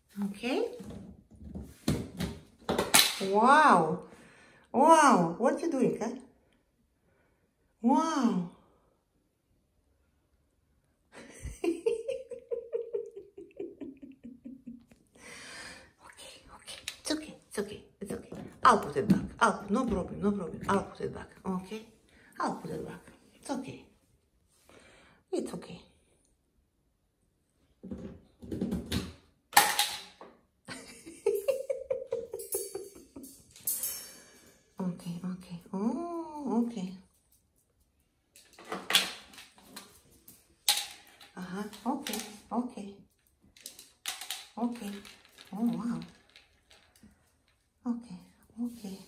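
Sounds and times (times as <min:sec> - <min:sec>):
person laughing: 0:11.2 - 0:15.1, 0:30.7 - 0:33.4
metal tube clanging on tile: 0:32.3 - 0:34.6
metal tube rattling and rolling: 0:43.6 - 0:47.6.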